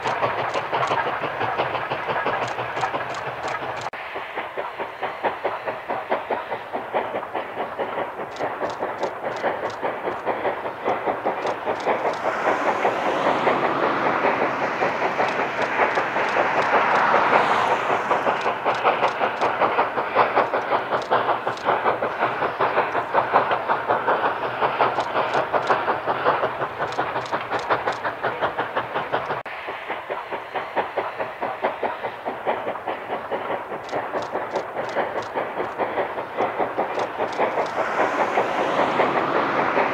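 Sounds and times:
steam locomotive chugging: 0.0s - 39.9s.

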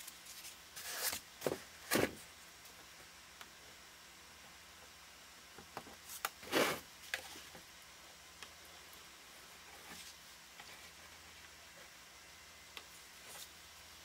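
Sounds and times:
scraping rustle: 0.0s - 2.2s, 6.0s - 7.6s.

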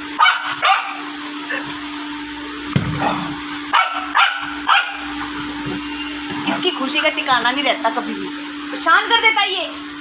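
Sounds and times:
dog barking: 0.2s - 1.0s, 3.7s - 5.1s
steady low hum: 0.9s - 10.0s.

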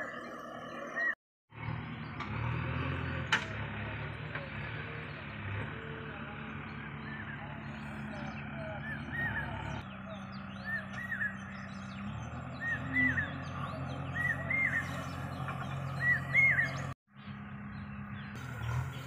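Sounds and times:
bird chirping paired notes: 0.0s - 1.2s, 7.0s - 19.0s
diesel machinery idling: 0.0s - 19.0s.

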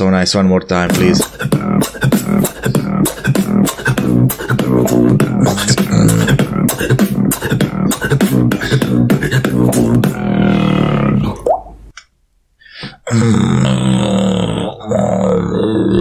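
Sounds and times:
beatboxing: 0.9s - 11.6s
buzzing bass: 0.9s - 11.7s.

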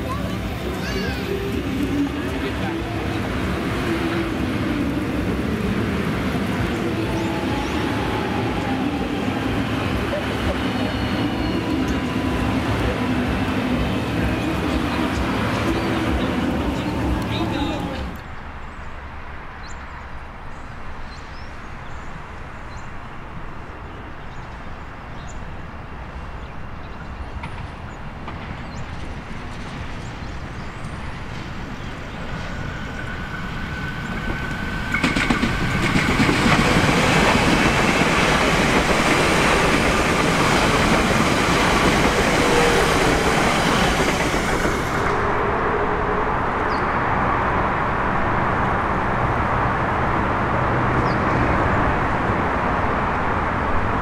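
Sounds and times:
wheel-on-rail noise: 0.0s - 20.1s, 21.4s - 54.0s
electric train passing: 0.0s - 54.0s
electric train rumble: 0.0s - 54.0s.

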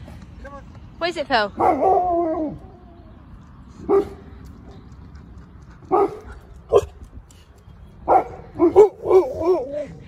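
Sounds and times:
puppy barking: 1.6s - 2.5s, 3.9s - 4.2s, 5.9s - 7.0s, 8.1s - 9.7s.

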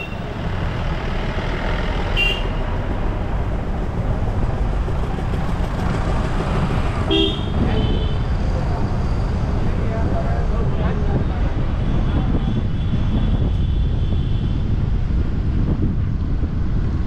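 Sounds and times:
car engine and road rumble: 0.0s - 17.0s
vehicle horn honking: 2.2s - 2.6s, 7.1s - 8.2s.

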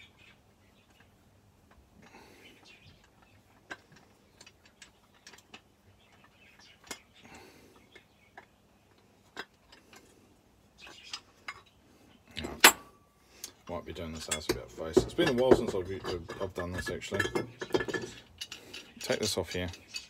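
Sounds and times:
metal tools clinking: 12.4s - 13.0s, 14.0s - 20.0s.

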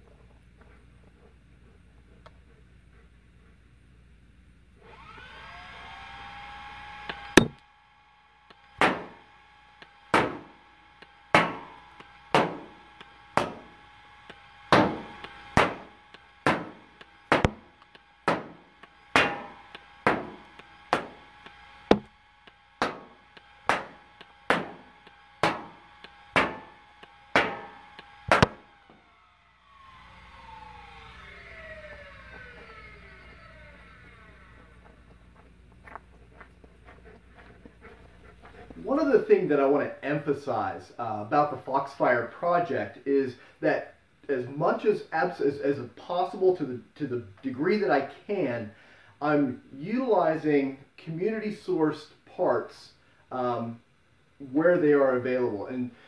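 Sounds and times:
flywheel motors whining: 4.8s - 36.0s
dart blaster shots cracking: 7.4s - 7.6s, 8.8s - 9.2s, 10.1s - 10.5s, 11.3s - 11.7s, 12.3s - 12.7s, 14.7s - 17.7s, 18.3s - 18.6s, 19.2s - 21.2s, 25.4s - 25.8s, 26.4s - 26.7s, 27.4s - 28.7s.

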